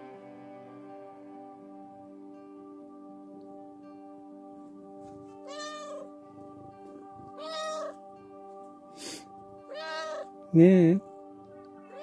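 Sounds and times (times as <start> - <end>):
soft background music: 0.0 - 12.0
cat meowing: 5.4 - 6.1, 7.3 - 8.0, 9.6 - 10.3.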